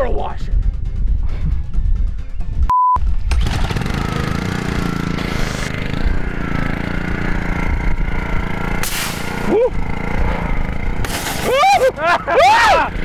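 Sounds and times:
small engine running: 3.1 - 13.0
water jet spraying hiss: 5.2 - 5.7, 8.8 - 9.4.

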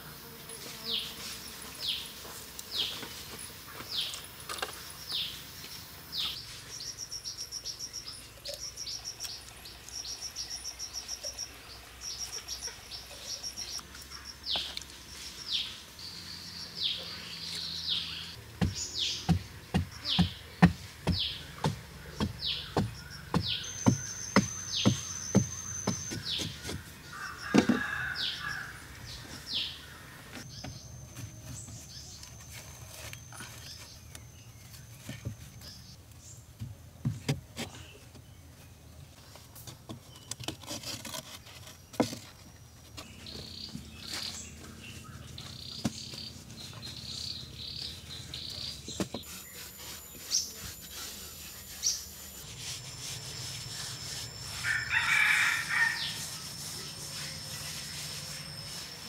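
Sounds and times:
birds chirping: 0.8 - 36.5, 41.4 - 59.0
hand tools knocking: 18.6 - 26.8
hoe chopping into soil: 18.6 - 26.8
rooster crowing: 27.1 - 28.8, 54.5 - 56.6.

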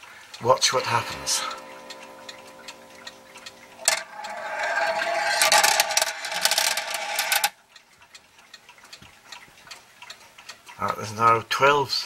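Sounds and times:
faint clock motor hum: 0.0 - 12.0
metal balls clattering down tracks: 3.8 - 7.6.

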